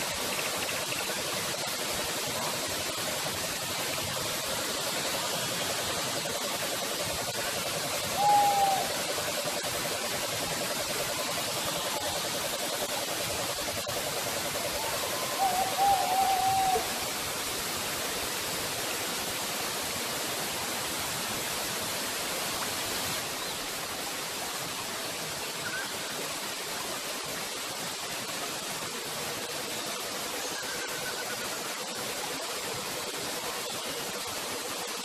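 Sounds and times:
waterfall rushing: 0.0 - 35.0
wavering call: 8.0 - 9.5, 14.4 - 17.1.

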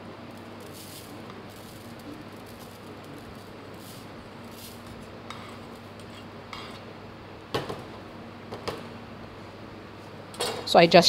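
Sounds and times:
knife scraping rice: 3.8 - 6.8.

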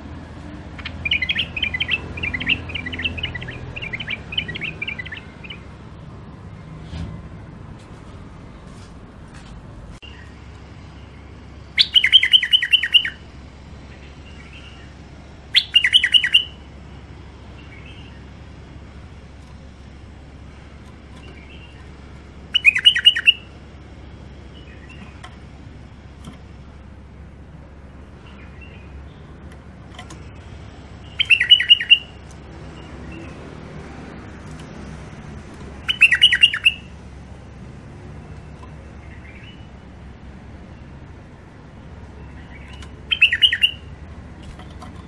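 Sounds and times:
bird song of repeated clear notes: 0.0 - 8.9, 10.0 - 45.0
faint soft bird calls: 42.1 - 43.9.

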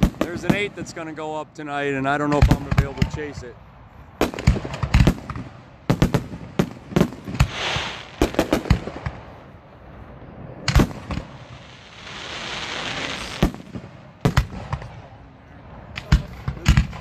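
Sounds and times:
firework shells booming: 4.2 - 9.4, 10.7 - 15.0
firework hiss: 7.0 - 9.3, 10.7 - 14.6.

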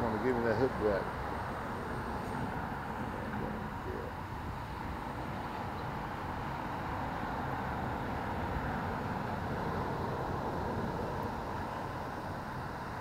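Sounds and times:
low unsteady rumble: 0.0 - 7.0
constant hiss: 0.0 - 13.0.

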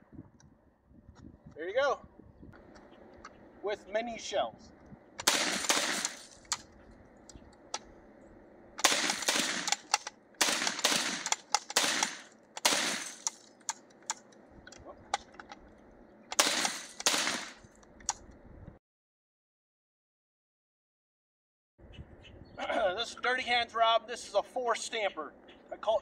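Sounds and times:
suppressed shotgun shots: 5.2 - 6.7, 8.8 - 13.5, 16.3 - 17.6.

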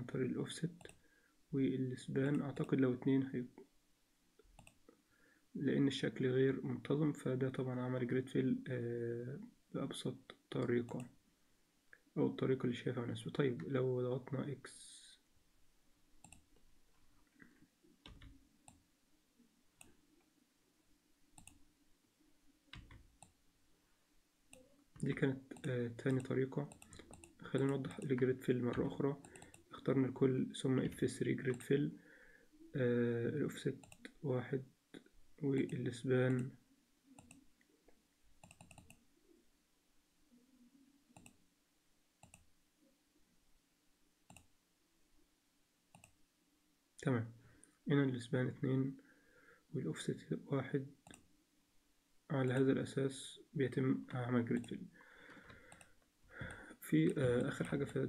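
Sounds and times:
computer mouse clicks: 4.4 - 4.8, 16.2 - 16.5, 21.4 - 21.6, 24.5 - 29.7, 38.4 - 39.0, 41.2 - 41.4, 42.2 - 42.5, 44.3 - 44.5, 45.9 - 46.2, 55.4 - 56.0.

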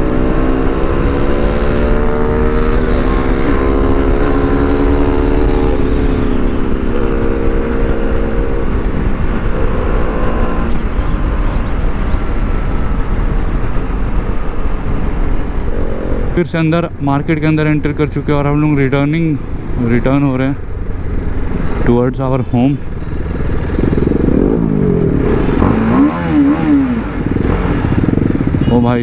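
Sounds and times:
motorcycle engine running: 0.0 - 16.4, 17.7 - 29.0
wind noise on microphone: 0.0 - 17.0, 22.9 - 29.0.

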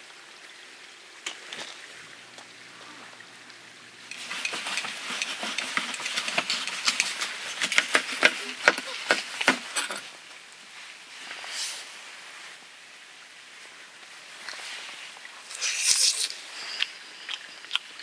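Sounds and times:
knife cutting ribs on a board: 4.8 - 9.6.

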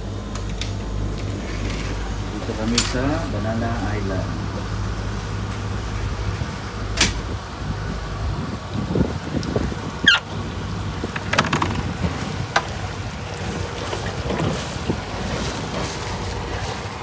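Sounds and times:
low mechanical hum: 0.0 - 17.0
clicks and knocks of boat gate: 6.9 - 7.3, 11.0 - 12.8
short squeak: 10.0 - 10.2.

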